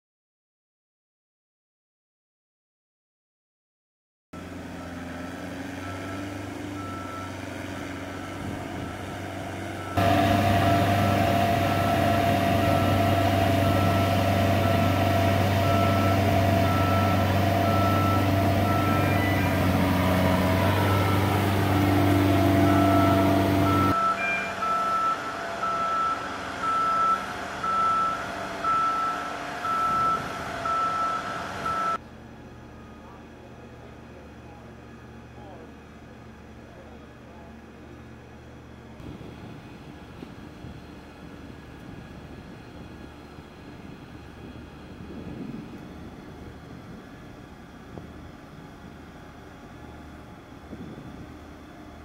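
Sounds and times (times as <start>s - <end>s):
heavy truck engines droning: 4.4s - 52.0s
backup alarm beeping: 9.8s - 32.0s.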